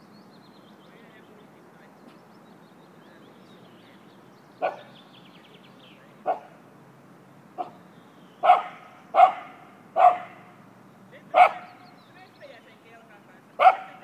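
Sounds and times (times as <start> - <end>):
dog barking: 4.6 - 4.9, 6.2 - 6.6, 7.6 - 7.8, 8.4 - 10.6, 11.3 - 11.8, 13.6 - 14.0.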